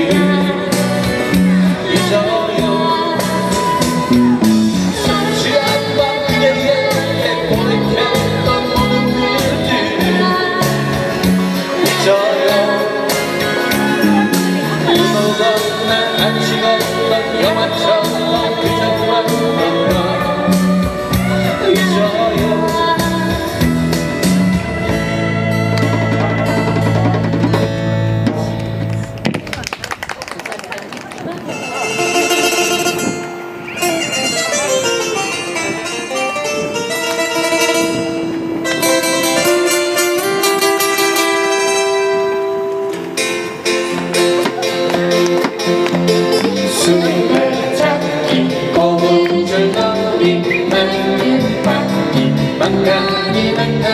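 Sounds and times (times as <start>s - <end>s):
person singing: 0.0s - 27.4s, 44.2s - 53.9s
strummed acoustic guitars: 0.0s - 28.9s, 31.5s - 53.9s
electric guitar: 0.0s - 30.2s, 31.0s - 53.9s
hand drum beat: 25.6s - 28.6s
melody of long held notes: 31.5s - 48.2s.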